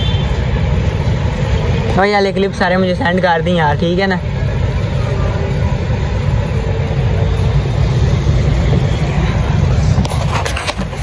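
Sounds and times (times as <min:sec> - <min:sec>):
wind buffeting microphone: 0:04.2 - 0:11.0.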